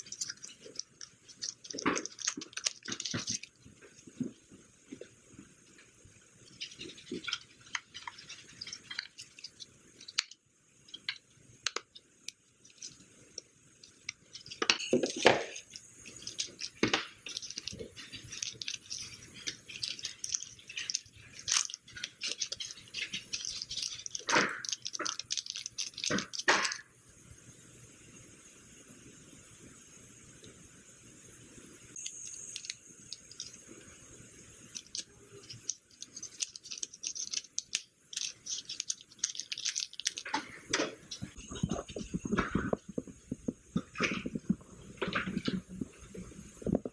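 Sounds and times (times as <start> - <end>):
clicks and taps of small parts: 0.0 - 3.6, 6.6 - 26.8, 34.6 - 45.6
plastic packet crinkling: 0.0 - 3.7, 14.3 - 26.8, 34.7 - 45.8.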